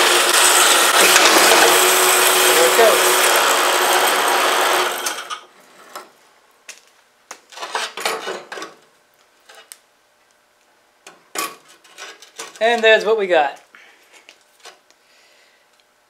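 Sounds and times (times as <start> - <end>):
metal-cutting bandsaw: 0.0 - 5.5.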